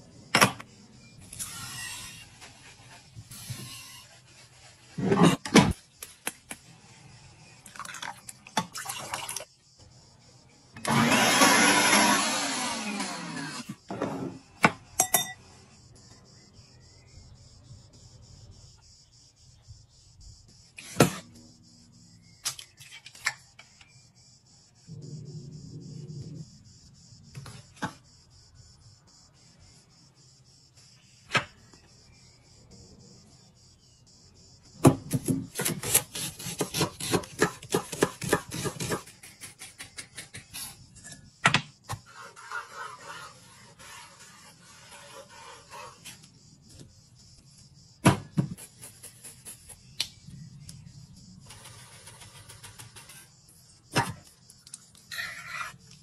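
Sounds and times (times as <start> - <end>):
insects chirring: 0.0 - 56.0
click: 50.0 - 50.8.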